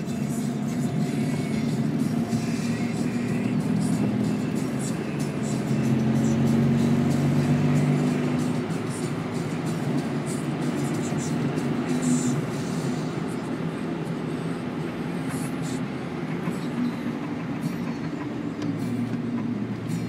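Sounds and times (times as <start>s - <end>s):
car engine and tyre rumble: 0.0s - 20.0s.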